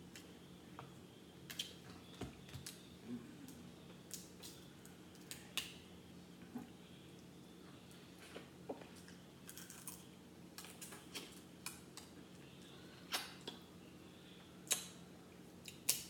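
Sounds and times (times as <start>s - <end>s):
crab shells cracking: 9.4s - 11.0s.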